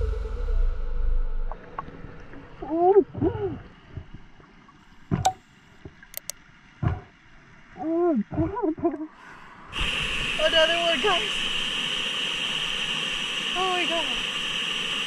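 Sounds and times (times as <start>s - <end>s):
sharp clicks: 6.1s - 6.4s.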